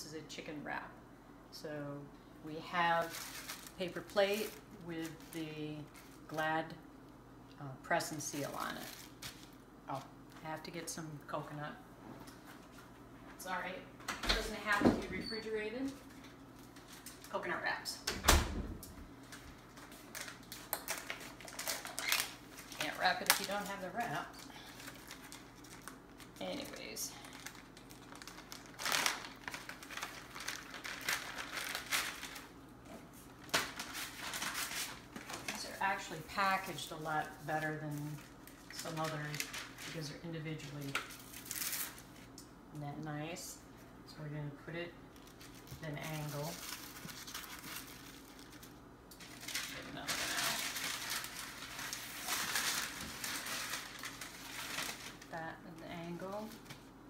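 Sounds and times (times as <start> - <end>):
food packaging crinkling: 2.8 - 6.4, 8.3 - 9.7, 15.9 - 17.4, 19.2 - 40.0, 40.7 - 42.5, 45.1 - 57.0.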